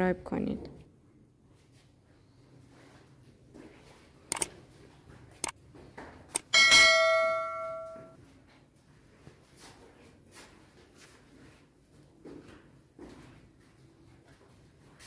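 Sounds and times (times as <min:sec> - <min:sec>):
sharp clicks: 0:04.3 - 0:04.5
small hanging bell ringing: 0:06.5 - 0:08.2.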